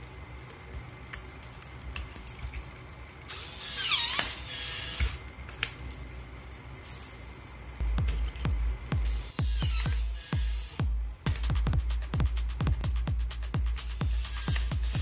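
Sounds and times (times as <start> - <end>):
needle incinerator crackling and clicking: 0.0 - 3.3.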